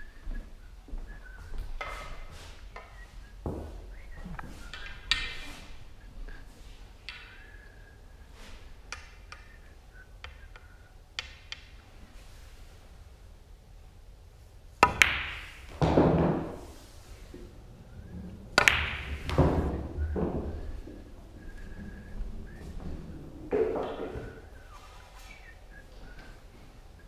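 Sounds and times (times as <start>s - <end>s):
sharp clack of pool balls: 14.8s - 16.6s, 18.6s - 20.4s
ball rumbling into pocket: 18.1s - 21.2s, 22.9s - 24.4s.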